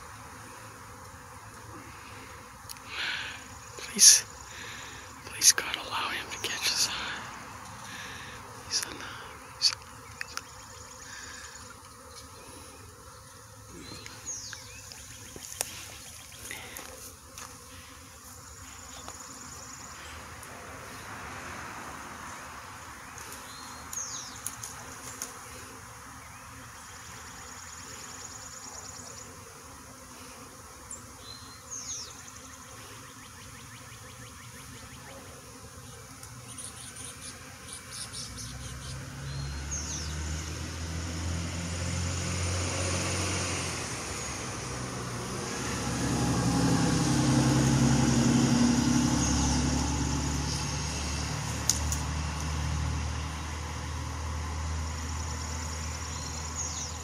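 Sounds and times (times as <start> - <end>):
honeybees buzzing: 0.0 - 57.0
branches clicking and rustling: 23.1 - 25.4, 51.4 - 52.6
vehicle engine rumbling: 38.5 - 56.9.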